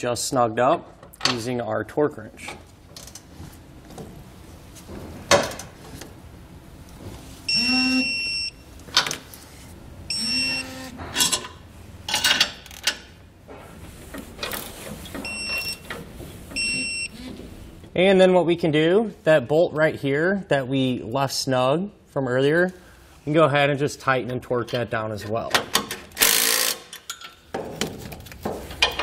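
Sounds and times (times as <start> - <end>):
torque wrench beeping: 7.5 - 8.6, 10.1 - 10.9.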